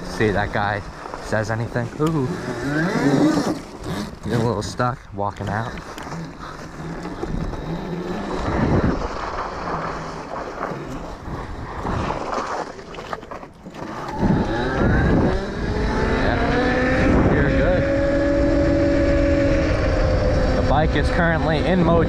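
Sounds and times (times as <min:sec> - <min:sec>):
electric motor whine: 0:00.0 - 0:04.8, 0:05.9 - 0:11.9, 0:13.8 - 0:22.0
tyres in snow: 0:00.0 - 0:16.3.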